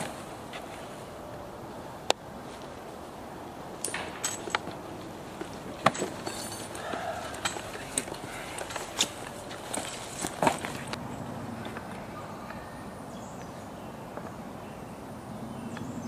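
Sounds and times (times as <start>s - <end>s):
disc striking a tree: 3.8s - 11.0s
footsteps on leaves and wood chips: 5.4s - 10.9s.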